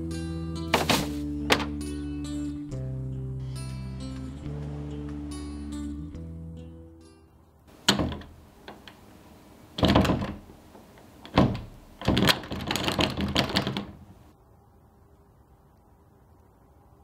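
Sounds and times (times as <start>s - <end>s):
sliding glass door rattling: 7.7s - 14.3s.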